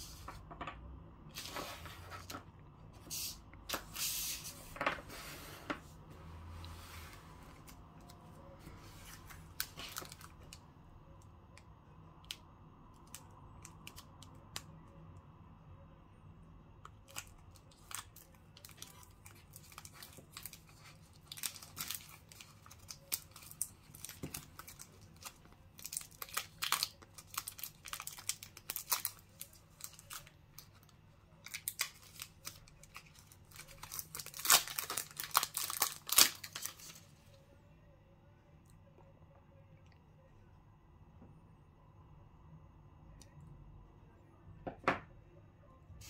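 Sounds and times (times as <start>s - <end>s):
candy wrapper tearing and crinkling: 9.1s - 10.6s, 12.2s - 14.7s, 16.9s - 37.2s.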